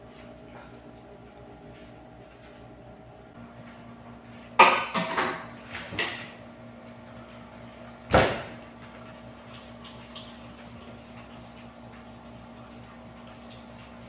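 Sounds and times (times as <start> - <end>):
kitchen knocks and rattles: 4.6 - 6.3.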